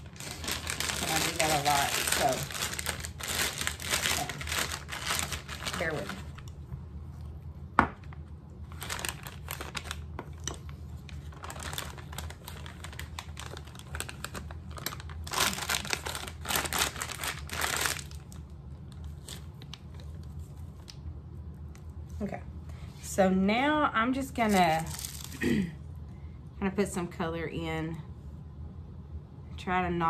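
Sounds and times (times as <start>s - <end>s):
plastic piping bag crinkling: 0.0s - 6.7s, 8.0s - 21.0s, 24.3s - 25.6s
low steady hum: 0.0s - 30.0s.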